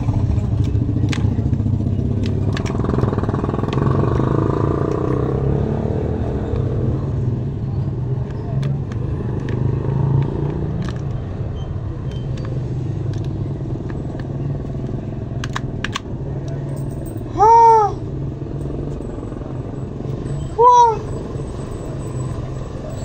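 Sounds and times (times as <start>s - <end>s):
vehicle engine rumble: 0.0s - 23.0s
loud pitched calls: 20.6s - 21.1s.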